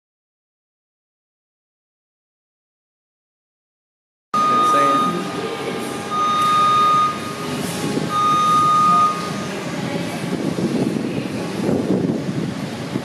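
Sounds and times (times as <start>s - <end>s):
machine warning beeps: 4.4s - 9.5s
assembly hall clatter and hum: 4.4s - 13.0s.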